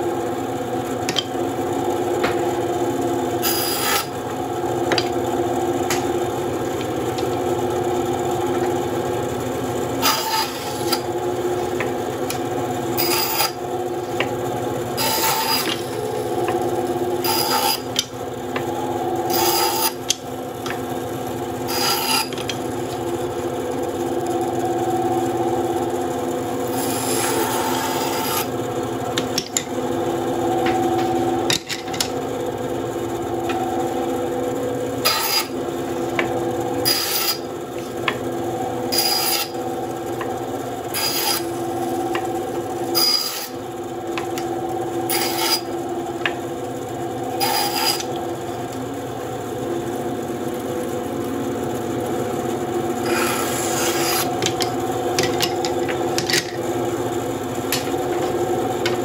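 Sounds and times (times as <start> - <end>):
bandsaw cutting wood: 3.4 - 5.1, 9.9 - 20.8, 21.5 - 23.1, 26.6 - 28.5, 35.0 - 38.2, 38.9 - 46.4, 47.3 - 48.6, 53.0 - 56.1.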